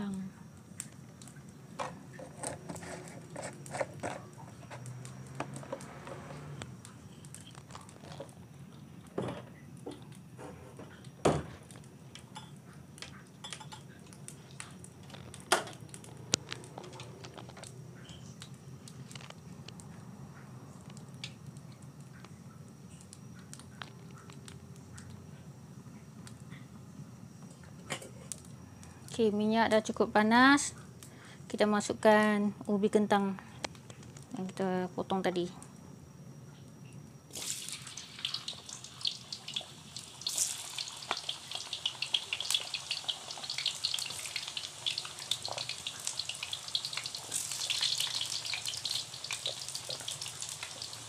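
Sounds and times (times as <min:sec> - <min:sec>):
gas burner running: 0:00.0 - 0:20.0, 0:37.3 - 0:51.0.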